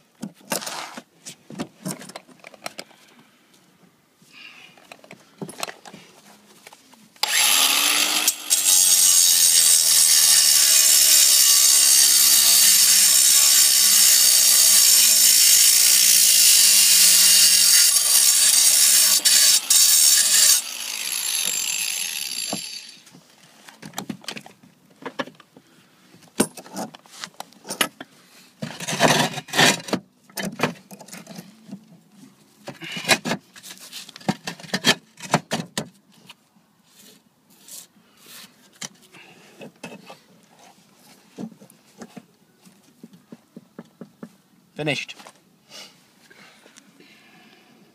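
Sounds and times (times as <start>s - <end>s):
angle grinder cutting tile: 7.2s - 23.0s.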